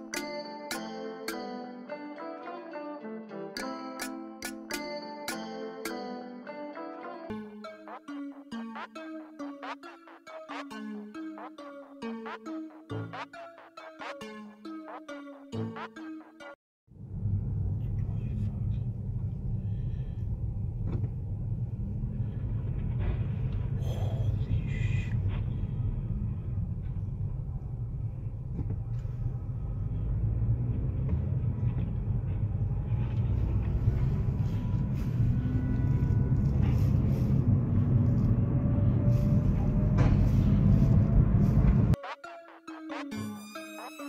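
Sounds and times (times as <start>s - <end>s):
car road and engine rumble: 17.0s - 42.0s.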